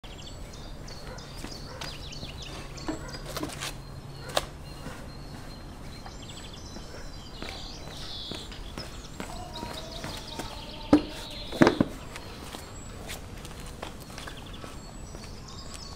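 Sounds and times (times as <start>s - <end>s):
small birds chirping: 0.0s - 15.9s
footsteps on paving: 1.0s - 15.9s
wooden barrel knocking: 10.9s - 12.0s.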